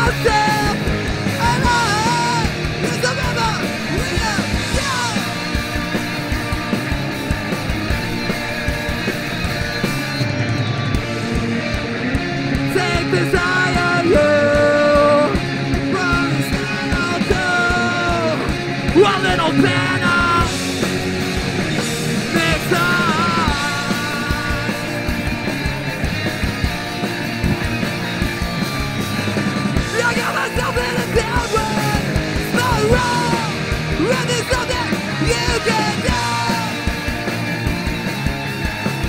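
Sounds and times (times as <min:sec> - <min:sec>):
drum beat: 0:00.0 - 0:39.0
live punk rock band: 0:00.0 - 0:39.0
yelled vocals: 0:00.0 - 0:39.0.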